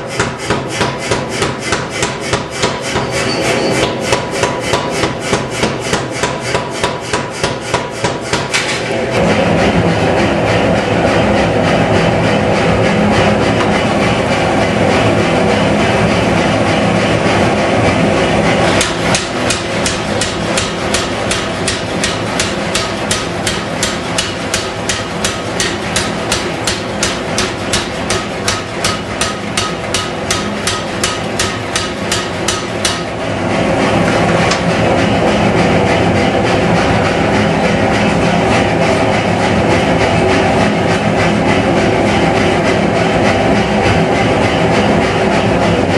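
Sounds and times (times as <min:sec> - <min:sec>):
power hammer striking metal: 0:00.0 - 0:09.6, 0:13.1 - 0:14.7, 0:18.5 - 0:33.3
gas forge burners roaring: 0:00.0 - 0:45.9.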